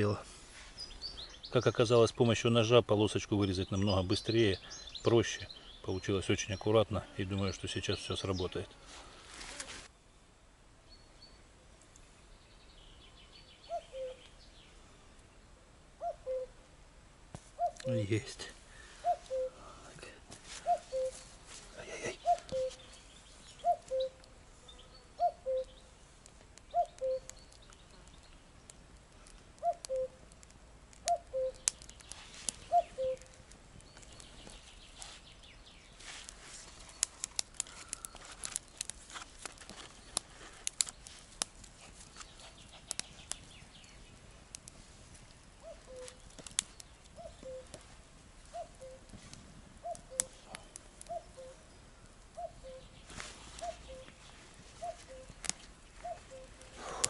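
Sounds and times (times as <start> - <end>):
small fire crackling: 0.0 - 57.0
cuckoo calling: 13.6 - 14.4, 16.0 - 16.6, 17.5 - 18.0, 19.0 - 19.7, 20.5 - 21.3, 22.0 - 25.9, 26.6 - 27.7, 29.6 - 30.2, 31.0 - 34.5, 45.6 - 47.8, 48.5 - 49.1, 49.8 - 57.0.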